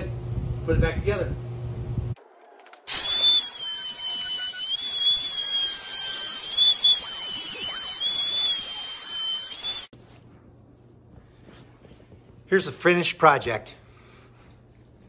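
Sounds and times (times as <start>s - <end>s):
router cutting wood: 2.9s - 9.9s.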